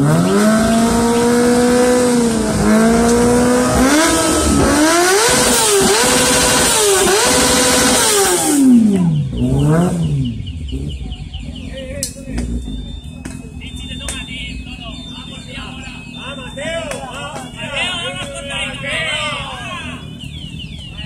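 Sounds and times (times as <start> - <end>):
motorcycle engine revving: 0.0 - 16.8.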